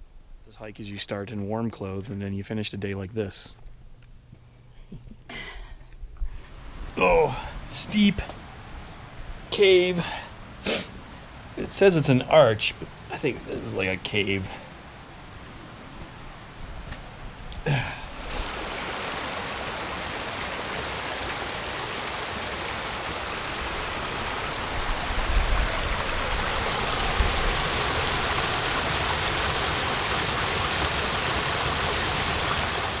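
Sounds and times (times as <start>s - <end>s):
creek rushing over rocks: 17.7s - 33.0s.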